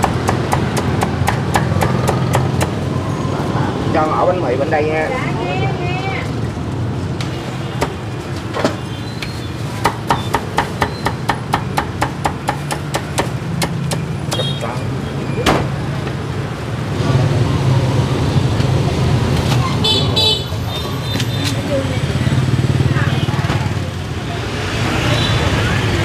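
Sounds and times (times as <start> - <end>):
cleaver chopping on wooden block: 0.0 - 2.8, 9.9 - 14.4.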